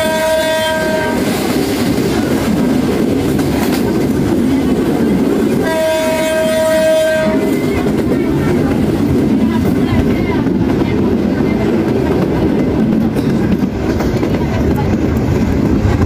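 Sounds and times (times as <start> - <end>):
train horn blasts: 0.0 - 1.4, 5.6 - 7.8
train rumbling on track: 0.0 - 16.0.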